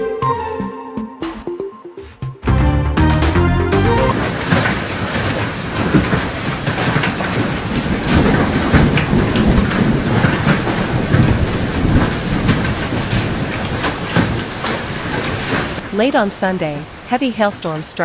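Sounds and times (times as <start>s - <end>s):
heavy hail on wet ground: 4.1s - 15.9s.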